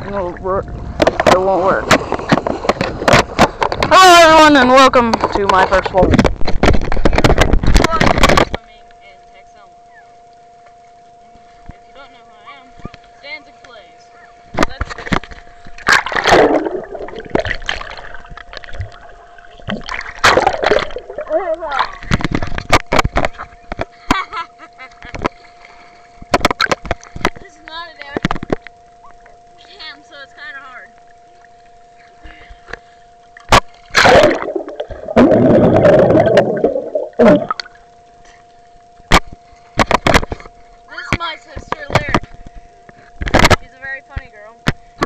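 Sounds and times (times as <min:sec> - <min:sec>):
water splashing and gurgling: 0:00.0 - 0:08.6, 0:14.6 - 0:24.1, 0:31.1 - 0:42.4.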